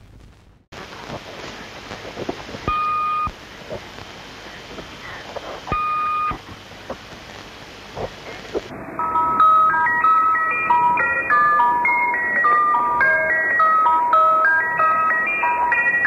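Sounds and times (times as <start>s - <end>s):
faint crackles: 0.0s - 8.7s
tape hiss: 0.0s - 16.0s
short steady beeps: 5.7s - 6.4s.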